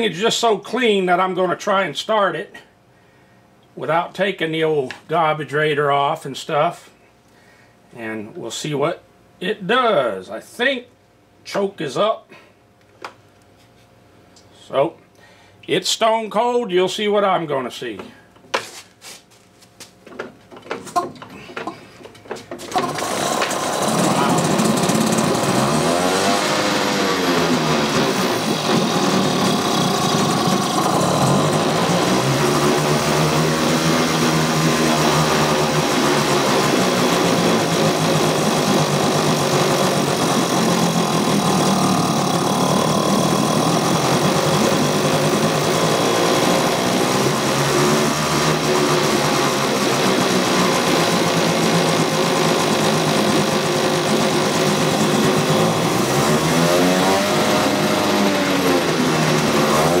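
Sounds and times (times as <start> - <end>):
outboard motor revving: 22.7 - 60.0.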